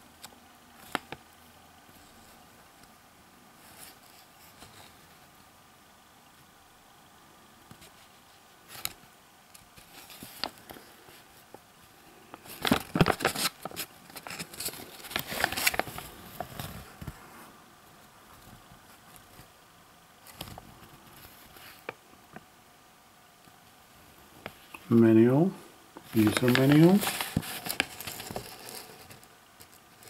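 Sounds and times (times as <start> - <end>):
paper crinkling and rustling: 0.8 - 1.2, 7.7 - 11.6, 12.3 - 17.3, 26.0 - 30.0.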